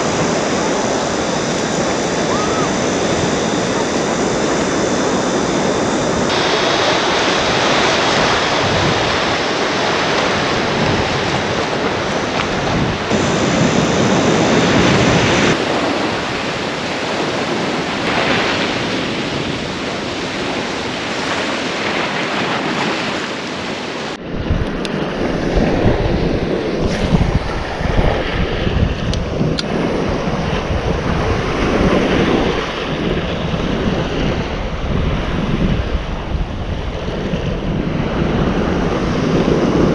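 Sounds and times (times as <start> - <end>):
surf breaking on rocky shore: 0.0 - 39.9
wind buffeting microphone: 0.0 - 39.9
uneven low rumble: 24.2 - 31.6.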